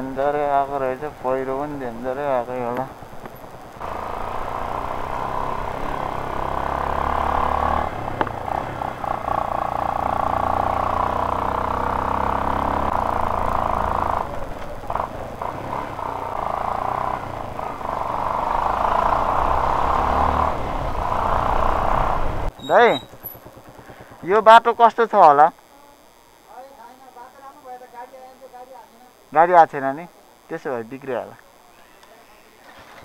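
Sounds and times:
vehicle engine running: 0:00.0 - 0:25.2.

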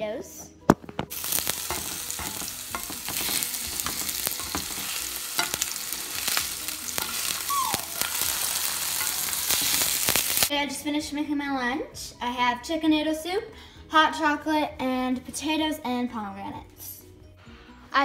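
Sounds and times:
potatoes sizzling in oil: 0:01.0 - 0:10.5
spatula scraping a pan: 0:01.2 - 0:10.5.

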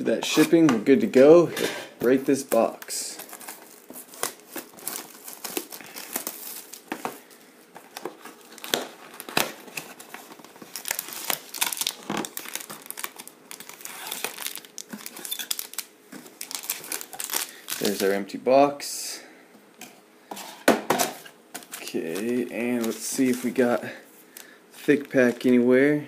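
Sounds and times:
foil packs crinkling: 0:02.0 - 0:18.1, 0:21.2 - 0:25.7
plastic shrink wrap crinkling: 0:02.0 - 0:18.1, 0:21.2 - 0:25.7.

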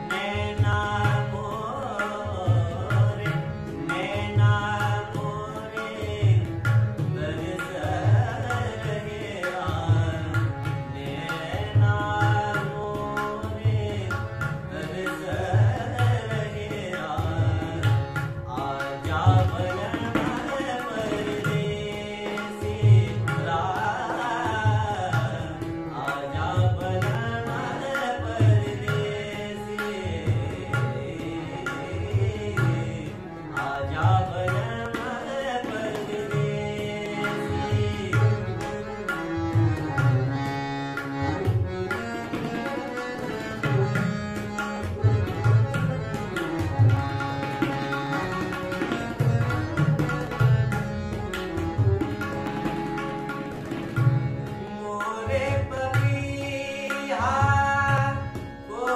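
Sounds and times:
man singing: 0:00.0 - 0:40.2, 0:54.3 - 0:58.9
harmonium: 0:00.0 - 0:58.9
tabla drumming: 0:00.0 - 0:58.9.

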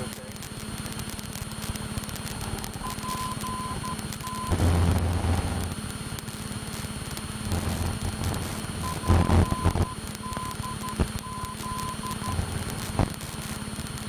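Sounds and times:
light aircraft engine drone: 0:00.0 - 0:14.0
low rumble: 0:00.0 - 0:14.0
short high beeps: 0:02.8 - 0:04.6, 0:08.8 - 0:12.4.

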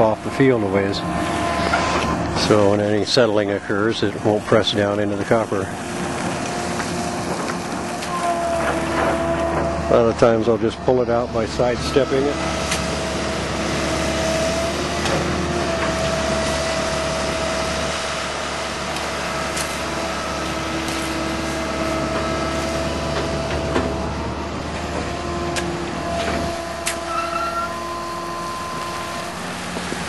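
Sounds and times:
excavator engine humming: 0:00.0 - 0:30.0.

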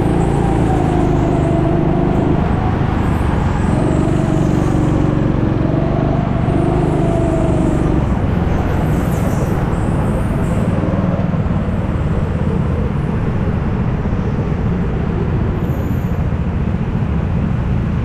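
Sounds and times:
go-kart engine revving: 0:00.0 - 0:13.2.

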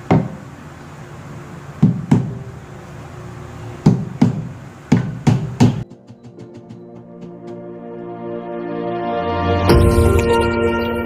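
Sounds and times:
hammer driving nails into wood: 0:03.8 - 0:07.6.

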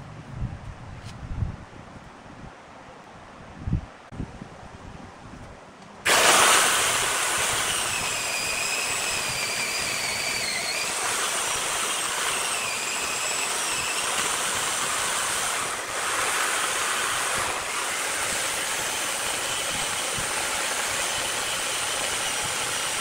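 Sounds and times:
chainsaw cutting wood: 0:06.1 - 0:23.0.

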